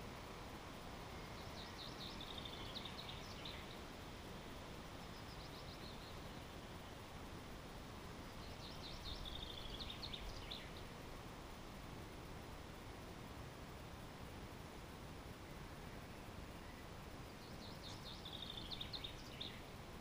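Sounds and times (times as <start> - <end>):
steady background hiss: 0.0 - 20.0
songbird trilling: 17.4 - 19.6.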